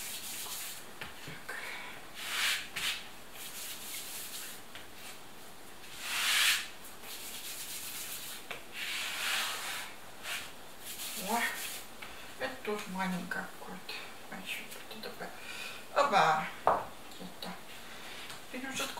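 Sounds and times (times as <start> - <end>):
hands rubbing dough on a surface: 0.0 - 0.8, 2.2 - 5.2, 5.8 - 11.9.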